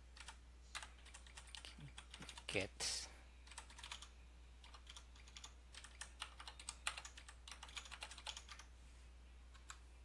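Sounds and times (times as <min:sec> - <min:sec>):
keyboard typing: 0:00.2 - 0:02.5, 0:03.4 - 0:08.7, 0:09.5 - 0:09.8.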